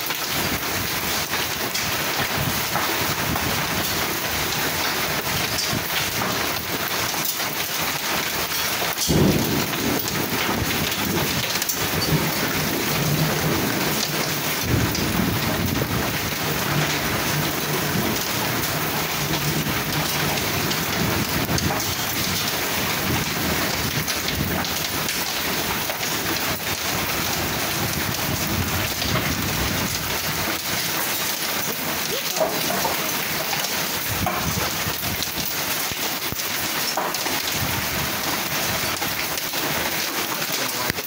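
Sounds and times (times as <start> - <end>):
heavy rain and hail pelting: 0.0 - 41.0
thunder rumbling: 9.0 - 36.8.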